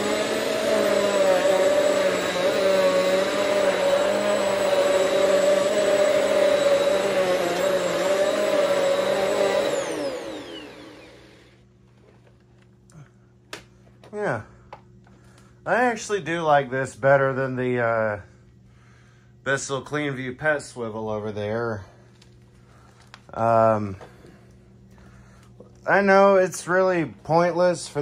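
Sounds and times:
vacuum cleaner running: 0.0s - 12.2s, 15.7s - 18.3s, 22.6s - 28.0s.

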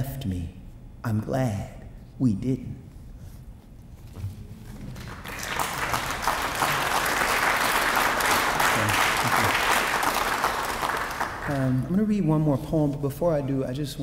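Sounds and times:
audience applauding: 4.8s - 11.8s.

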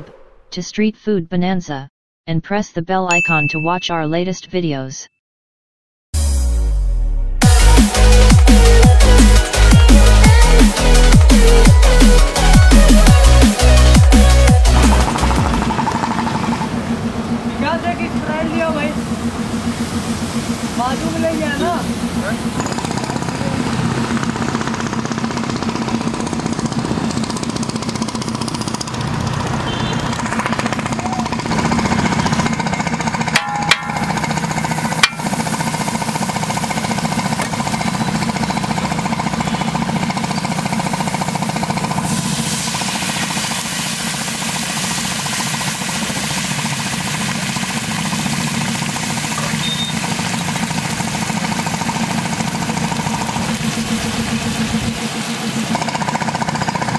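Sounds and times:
food sizzling on a griddle: 42.1s - 51.0s.

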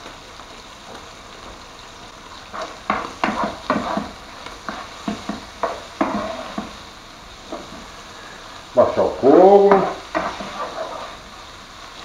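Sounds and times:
bacon sizzling in frying pan: 0.0s - 12.0s
utensil scraping a pan: 2.5s - 6.8s, 7.4s - 7.9s, 9.6s - 11.3s.

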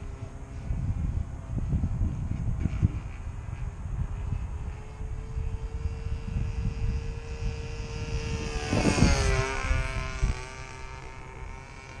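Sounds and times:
model airplane engine droning: 0.0s - 12.0s.

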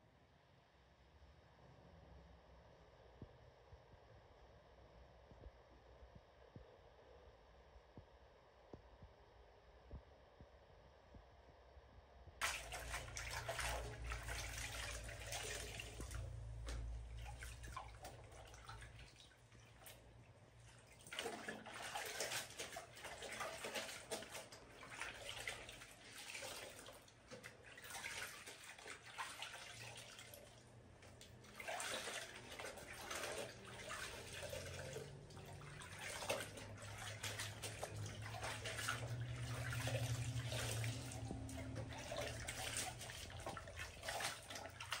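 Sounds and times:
wet fabric sloshing in water: 12.4s - 45.0s.

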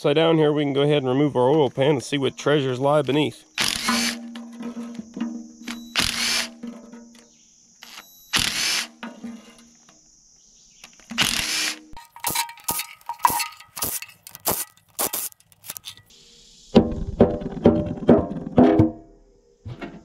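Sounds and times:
tool and bolts clicking: 10.8s - 16.1s
impact driver spinning bolts: 11.1s - 16.0s.

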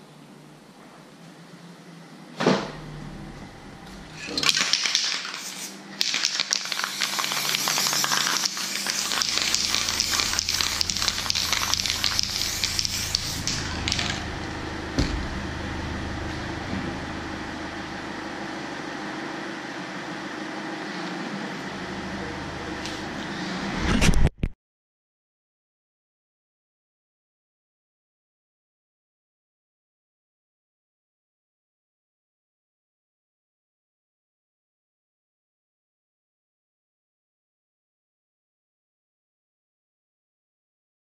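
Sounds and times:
low steady hum: 0.0s - 4.5s, 7.1s - 24.0s
spray can hissing: 4.4s - 14.2s.

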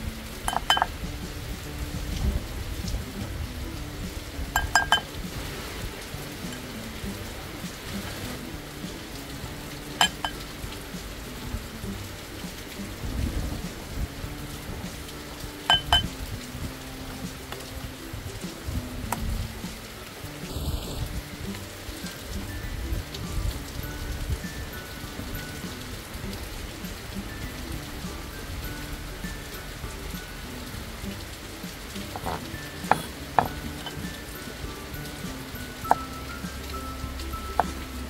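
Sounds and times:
rain falling: 0.0s - 38.0s
soft background music: 0.0s - 38.0s
utensil clinking on ceramic dish: 0.5s - 0.9s, 4.6s - 5.1s, 10.0s - 10.4s, 15.7s - 16.1s, 32.1s - 34.2s.

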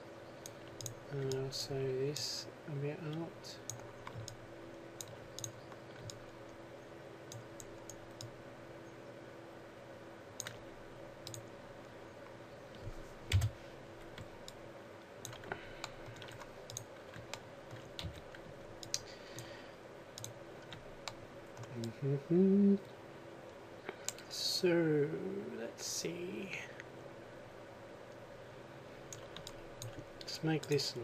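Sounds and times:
faint steady hum: 0.0s - 31.0s
mouse and keyboard clicks: 5.0s - 6.3s.

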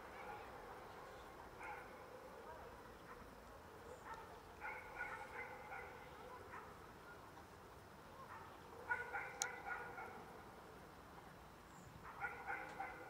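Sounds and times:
distant dog barking: 1.6s - 6.8s, 8.2s - 10.3s, 12.0s - 13.0s.

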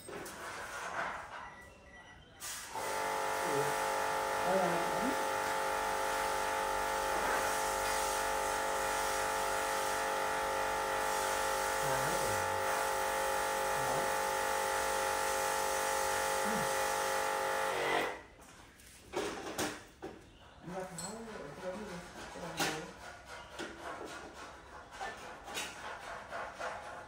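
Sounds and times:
induction cooker electrical buzz: 2.7s - 18.2s.

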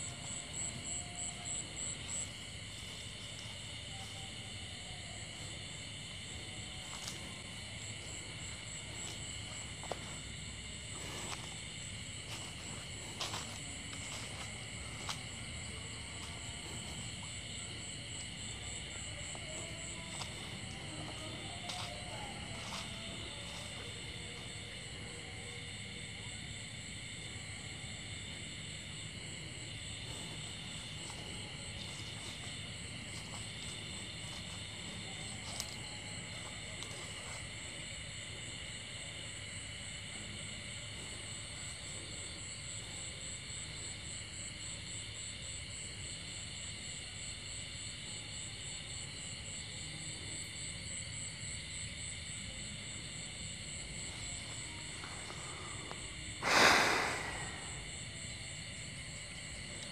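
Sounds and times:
night insects trilling: 0.0s - 59.9s
sudden loud noise: 56.4s - 57.8s.

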